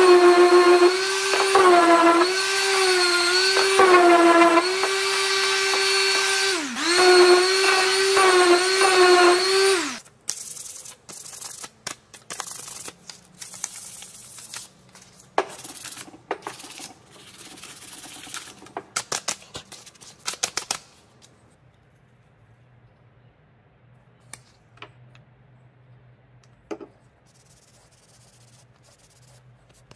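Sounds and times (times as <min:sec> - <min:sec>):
power tool motor whining: 0:00.0 - 0:10.0
sandpaper rubbing on wood: 0:27.3 - 0:29.9.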